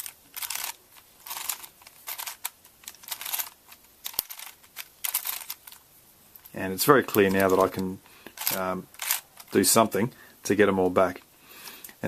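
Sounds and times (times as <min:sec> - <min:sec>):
puzzle cube layers clicking: 0:00.0 - 0:05.8.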